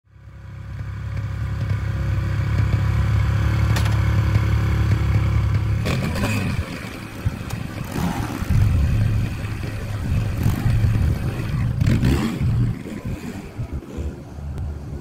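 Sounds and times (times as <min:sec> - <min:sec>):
dirt bike engine idling: 0:00.1 - 0:13.9
dirt bike engine revving: 0:02.6 - 0:14.2.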